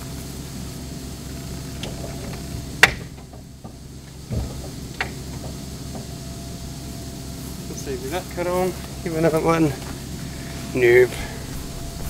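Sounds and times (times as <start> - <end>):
dull thump: 1.9 - 6.7
low rumble: 10.0 - 12.0.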